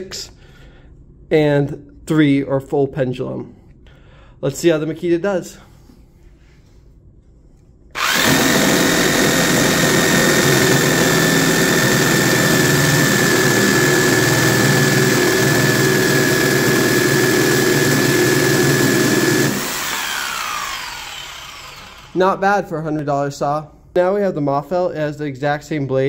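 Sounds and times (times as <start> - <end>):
jigsaw cutting wood: 8.0 - 22.2.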